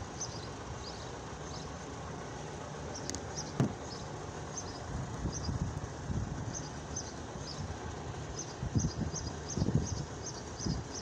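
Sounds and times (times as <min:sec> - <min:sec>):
street rumble: 0:00.0 - 0:11.0
sharp thump: 0:03.6 - 0:03.8.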